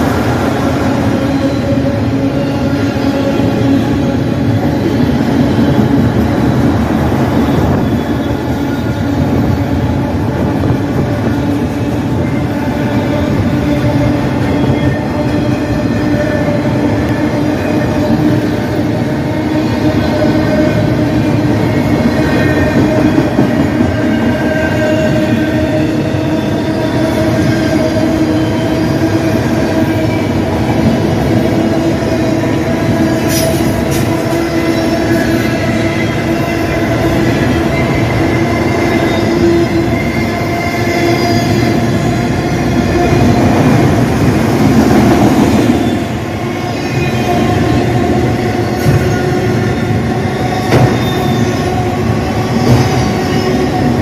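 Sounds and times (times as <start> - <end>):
freight train rolling past: 0.0 - 54.0.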